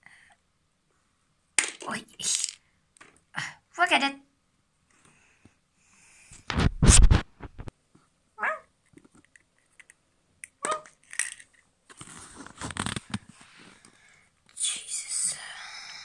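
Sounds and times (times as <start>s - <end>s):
toys rubbing against microphone: 6.5s - 7.7s.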